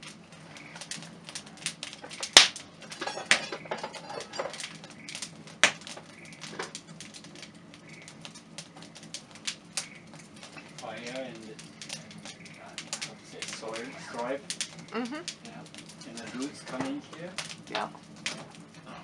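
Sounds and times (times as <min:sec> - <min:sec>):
sharp fire cracks: 0:00.0 - 0:19.0
wood fire crackling: 0:00.0 - 0:19.0.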